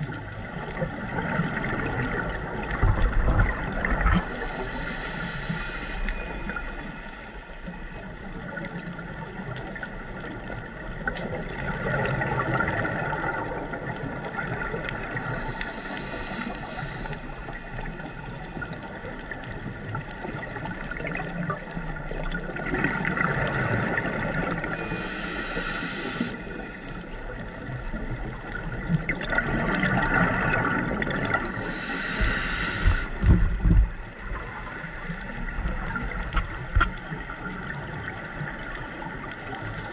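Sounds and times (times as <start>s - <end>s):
exhaled bubbles gurgling: 0.0s - 39.9s
regulator hissing on inhale: 4.0s - 7.2s, 15.0s - 17.9s, 24.6s - 27.0s, 31.4s - 33.4s.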